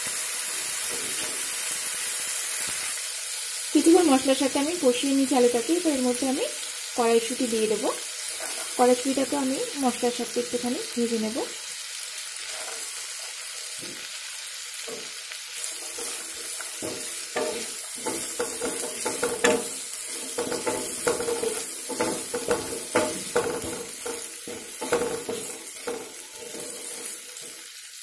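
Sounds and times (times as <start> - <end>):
vegetables sizzling in oil: 0.0 - 28.0
spatula scraping a pan: 8.2 - 8.8, 12.4 - 14.1, 14.8 - 27.7.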